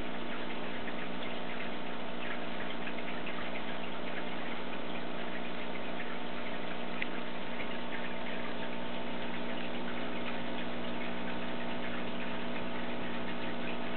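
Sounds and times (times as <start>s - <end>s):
aquarium filter humming: 0.0s - 13.9s
water trickling: 0.0s - 13.9s.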